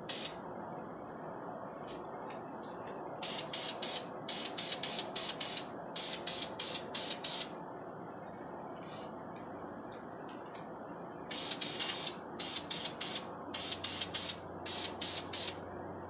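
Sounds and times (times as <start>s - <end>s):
spray can sputtering hiss: 0.0s - 0.4s, 3.2s - 7.5s, 11.3s - 15.6s
steady background hiss: 0.0s - 16.0s.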